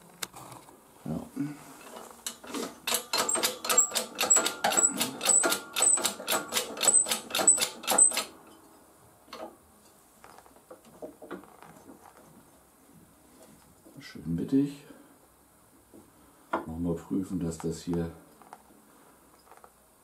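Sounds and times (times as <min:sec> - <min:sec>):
rapid mechanical clicking: 0:02.3 - 0:08.3.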